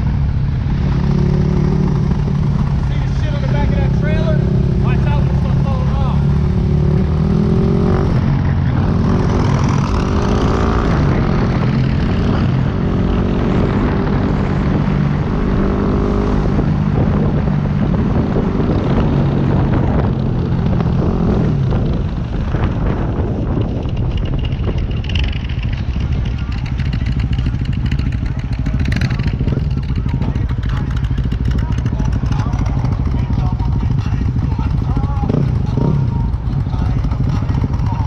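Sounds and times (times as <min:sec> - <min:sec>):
motorcycle engines running: 0:00.0 - 0:38.0
wind rush on microphone: 0:00.0 - 0:38.0.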